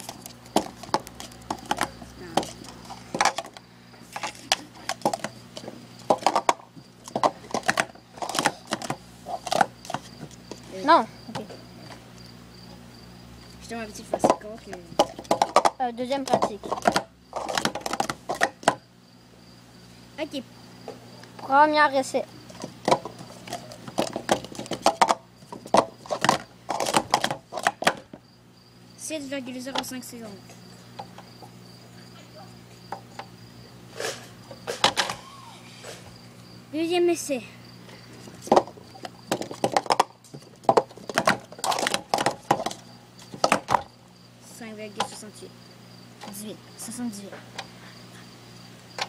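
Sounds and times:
plastic cups clicking and clattering: 0.0s - 10.7s, 14.1s - 18.8s, 22.5s - 28.1s, 38.2s - 43.9s.

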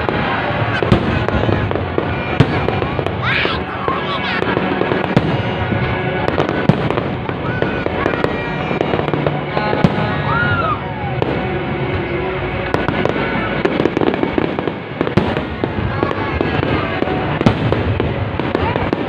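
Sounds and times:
fireworks bangs and crackling: 0.0s - 19.0s.

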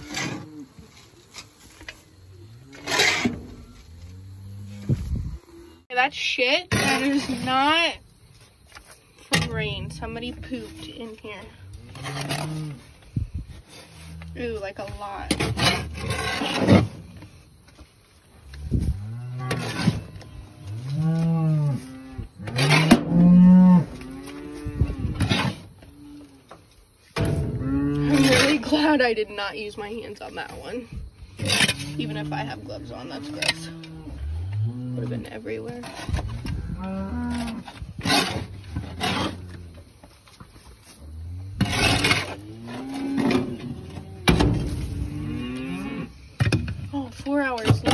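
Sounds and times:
cows mooing: 9.4s - 12.9s, 18.5s - 26.4s, 27.3s - 28.6s, 31.5s - 37.8s, 41.1s - 46.2s.

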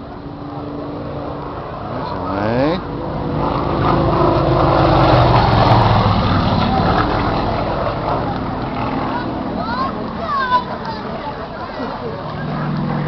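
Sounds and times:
propeller plane flying past: 0.0s - 13.0s.

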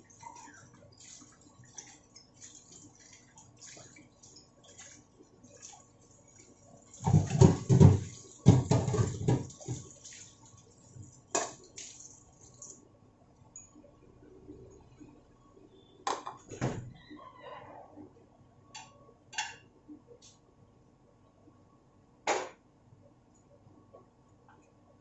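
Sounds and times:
broth simmering with popping bubbles: 0.0s - 15.9s.

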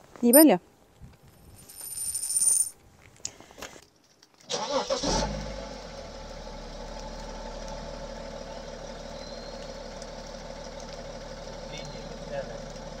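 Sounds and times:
diesel engine idling: 6.0s - 13.0s.

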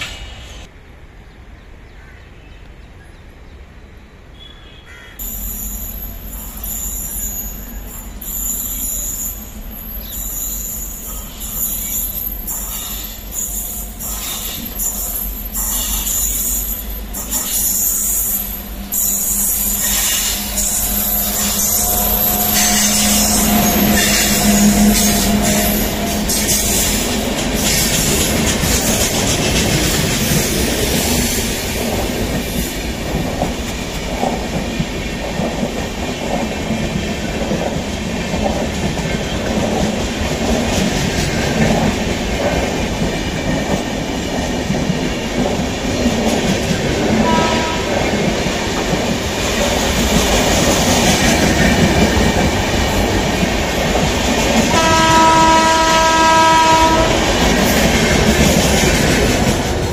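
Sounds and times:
train wheels rumbling on rails: 5.2s - 59.9s
multi-tone train horn: 19.0s - 27.6s, 47.1s - 48.3s, 54.6s - 58.2s
faint horn toot: 47.2s - 48.0s, 54.7s - 57.2s.

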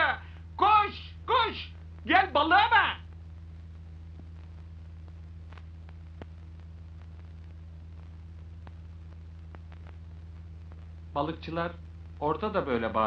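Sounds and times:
low electrical hum: 0.0s - 13.0s
faint clicks: 3.1s - 11.0s.

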